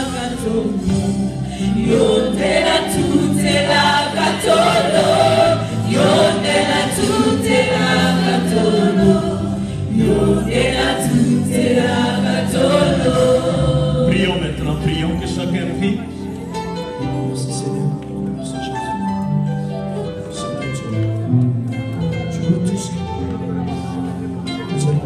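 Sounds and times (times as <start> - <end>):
choir singing: 0.0 - 15.7.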